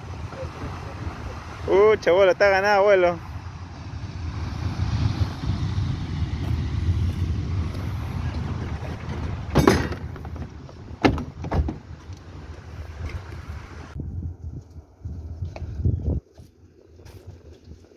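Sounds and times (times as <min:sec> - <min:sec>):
wind rumble on microphone: 0:00.0 - 0:17.9
gear knocking in truck bed: 0:08.9 - 0:11.9.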